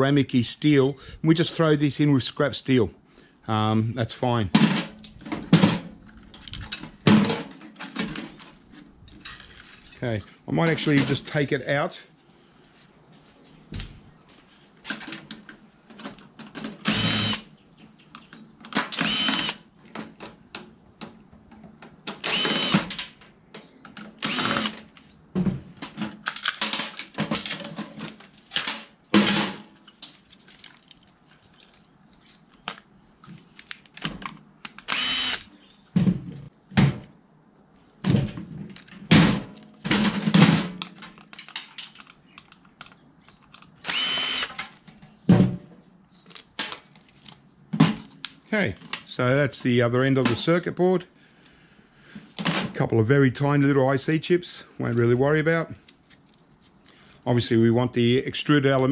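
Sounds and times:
power drill bursts: 16.8s - 17.5s, 18.9s - 19.6s, 22.2s - 23.1s, 24.2s - 24.8s, 34.9s - 35.5s, 43.8s - 44.6s
metal parts clicking: 40.8s - 44.6s.

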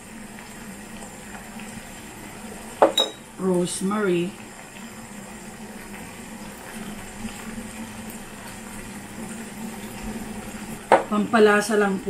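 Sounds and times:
sauce simmering with hiss: 0.0s - 12.0s.

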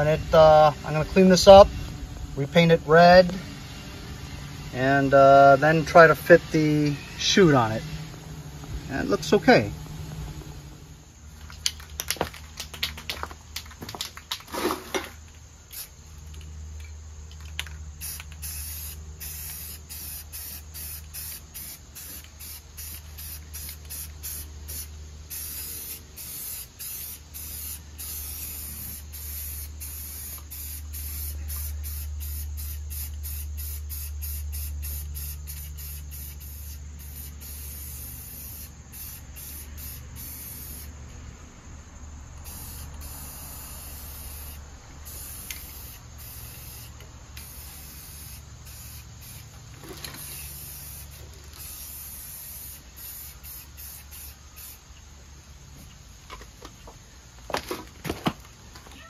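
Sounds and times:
steady low hum: 0.0s - 12.6s
spray-paint can spraying: 14.4s - 16.5s, 17.4s - 41.0s, 42.4s - 54.9s.

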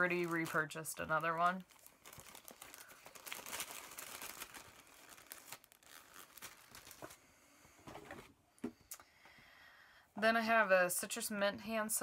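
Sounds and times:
paper bag rustling: 0.0s - 7.2s.

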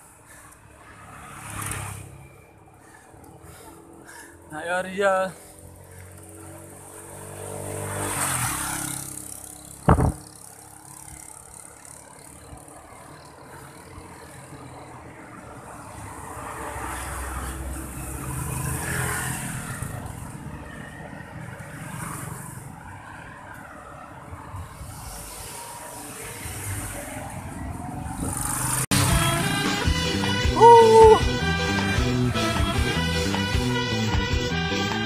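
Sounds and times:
road traffic engines: 0.0s - 35.0s
sudden loud thump: 9.9s - 10.2s.

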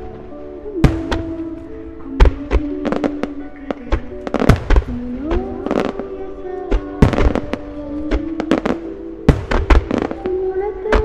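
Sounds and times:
music playing: 0.0s - 11.0s
fireworks booming and cracking: 3.8s - 5.9s, 9.3s - 10.2s.

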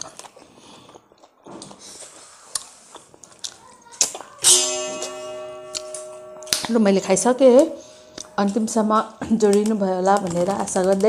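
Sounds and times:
strummed guitar chord: 4.4s - 8.4s.

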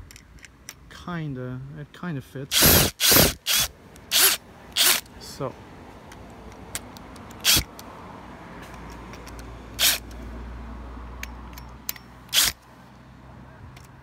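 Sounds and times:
cordless drill driving screws: 2.5s - 5.0s, 7.4s - 7.7s, 9.8s - 10.0s, 12.3s - 12.6s.

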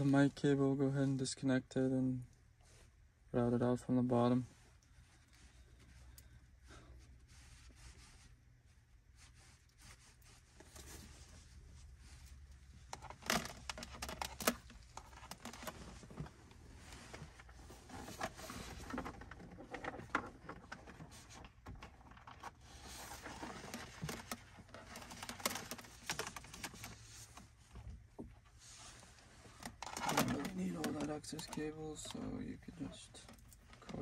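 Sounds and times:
cable rustling and clicking: 12.0s - 34.0s.

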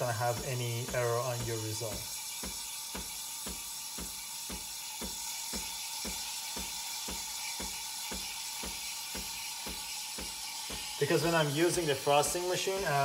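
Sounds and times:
machine pulsing knocks: 0.0s - 11.9s
steam wand hissing: 0.0s - 13.0s.

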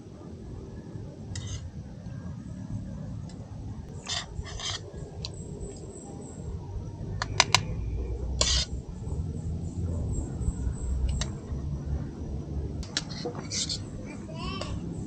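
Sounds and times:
steady low rumble: 0.0s - 15.0s
spoon scraping on plate: 1.4s - 1.7s, 4.0s - 4.8s, 8.4s - 8.7s, 13.0s - 13.8s.

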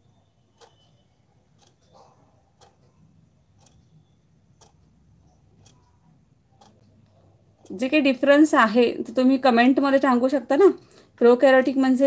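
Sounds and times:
clock ticking: 0.0s - 8.8s.

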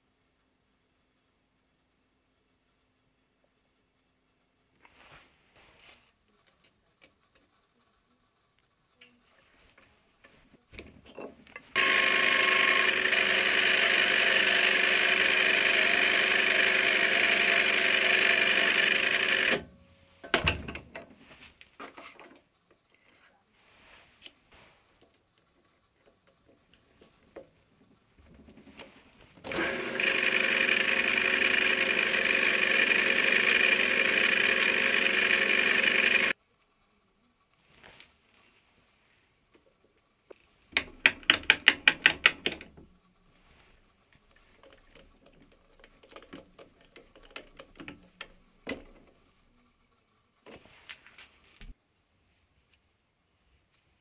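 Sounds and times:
lathe motor and gear whine: 11.7s - 19.8s, 29.4s - 36.4s
knocks and clicks: 17.1s - 21.1s, 40.8s - 43.0s.

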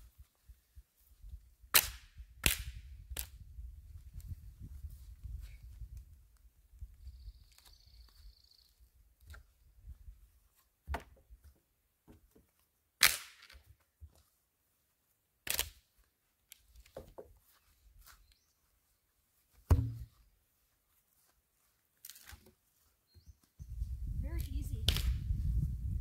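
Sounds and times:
wooden fence rails knocking: 19.7s - 20.1s.

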